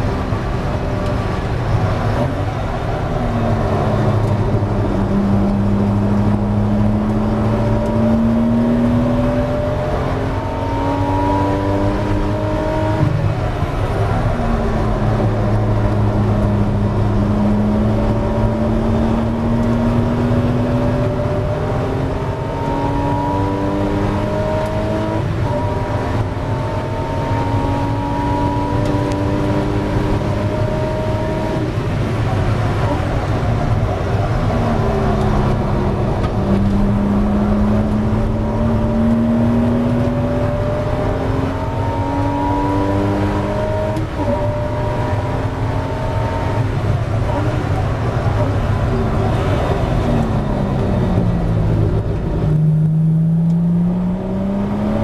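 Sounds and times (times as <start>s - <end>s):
car engine revving: 0.0s - 55.0s
road and wind noise: 0.0s - 55.0s.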